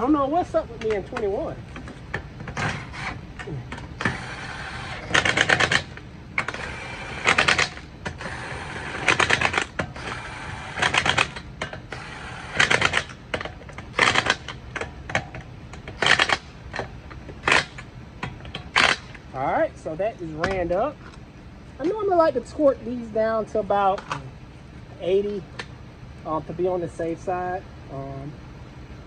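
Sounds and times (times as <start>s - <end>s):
impact wrench whirring and rattling: 1.0s - 19.2s.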